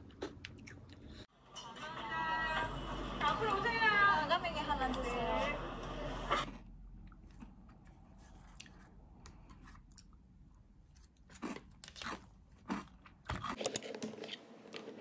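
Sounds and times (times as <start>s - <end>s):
chewing crunchy food: 0.0s - 1.3s, 6.3s - 15.0s.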